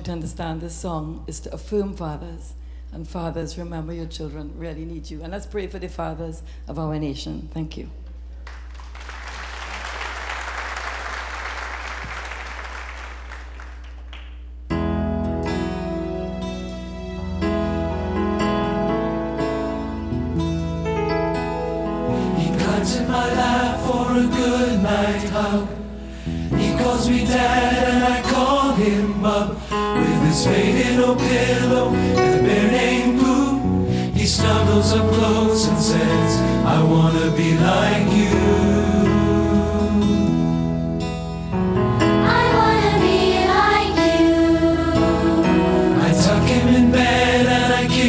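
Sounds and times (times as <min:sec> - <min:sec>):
audience applauding: 0:08.4 - 0:14.5
men's choir singing: 0:22.4 - 0:25.9, 0:26.5 - 0:40.2, 0:42.2 - 0:48.0.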